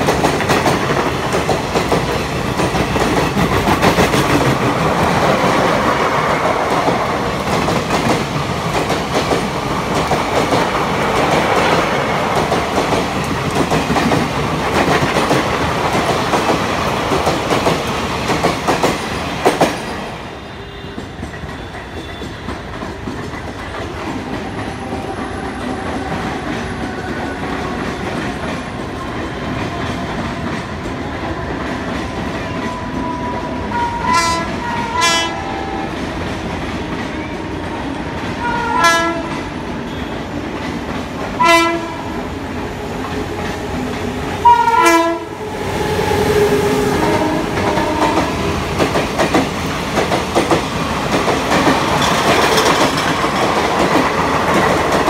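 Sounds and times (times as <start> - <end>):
train coaches rattling over rail joints: 0.0 - 55.0
locomotive horn blasts: 33.4 - 35.9, 38.4 - 39.3, 41.4 - 42.1, 44.4 - 45.3, 47.0 - 48.3.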